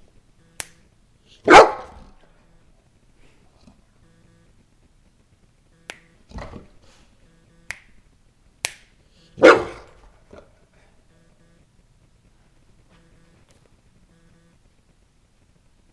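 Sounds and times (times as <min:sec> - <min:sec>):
finger snaps: 0:00.6 - 0:00.8, 0:05.8 - 0:06.2, 0:07.6 - 0:08.0, 0:08.6 - 0:09.0
dog barking: 0:01.4 - 0:02.2, 0:09.4 - 0:10.5.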